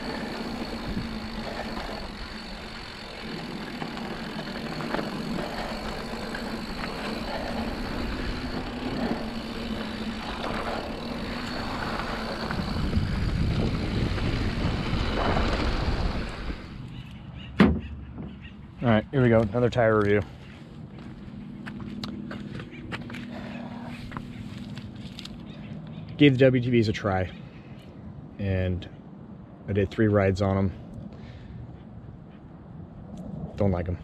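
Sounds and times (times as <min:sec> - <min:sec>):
bike tyre rumble on dirt: 0:00.0 - 0:16.8
bike rattle: 0:00.0 - 0:25.8
wind on microphone: 0:07.5 - 0:16.8, 0:31.6 - 0:34.0.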